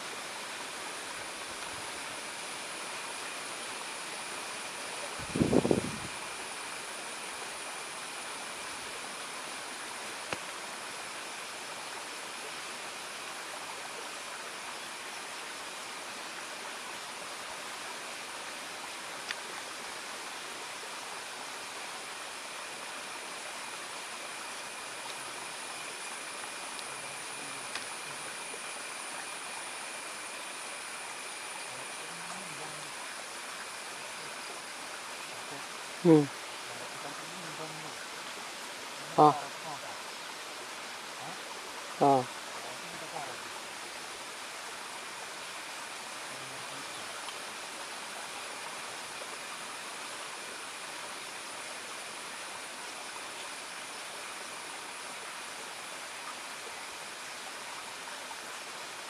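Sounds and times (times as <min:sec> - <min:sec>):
forest ambience hiss: 0:00.0 - 0:59.0
high-pitched insect drone: 0:00.0 - 0:59.0
faint clicks: 0:19.2 - 0:19.4, 0:27.6 - 0:27.9.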